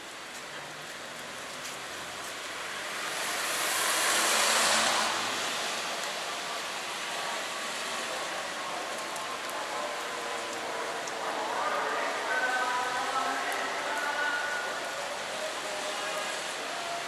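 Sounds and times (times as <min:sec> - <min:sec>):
wet street traffic noise: 0:00.0 - 0:17.0
car tyres hissing on wet road: 0:00.1 - 0:17.0.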